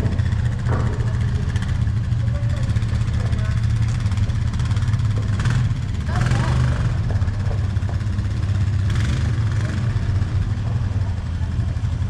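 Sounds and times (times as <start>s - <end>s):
quad bike engine droning: 0.0s - 12.0s.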